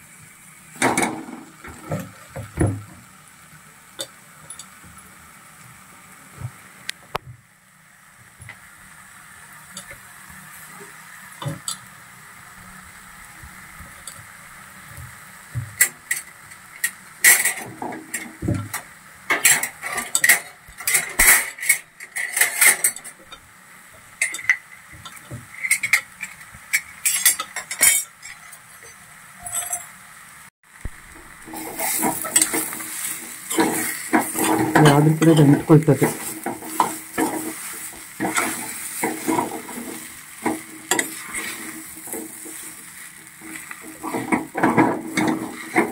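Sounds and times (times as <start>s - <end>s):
light sizzle: 0.0s - 45.9s
spoon scraping an iron pan: 24.2s - 29.9s, 31.5s - 45.9s.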